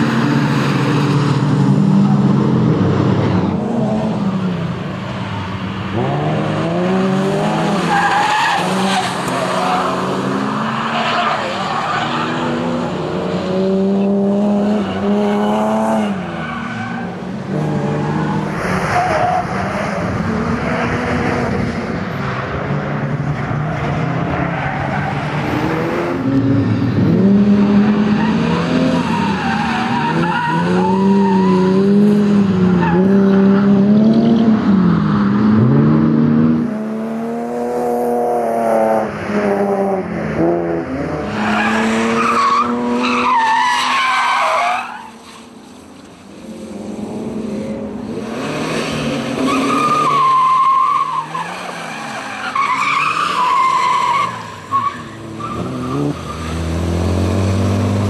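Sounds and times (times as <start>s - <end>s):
tyres skidding and squealing: 0.0s - 35.8s, 39.0s - 58.0s
car engine revving hard: 55.2s - 58.0s.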